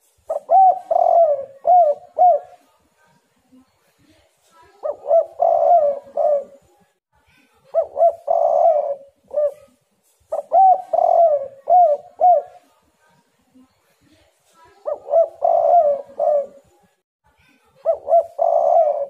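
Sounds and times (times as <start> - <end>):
dove cooing: 0.3 - 2.6, 4.8 - 6.7, 7.7 - 9.7, 10.3 - 12.6, 14.8 - 16.7, 17.8 - 19.0.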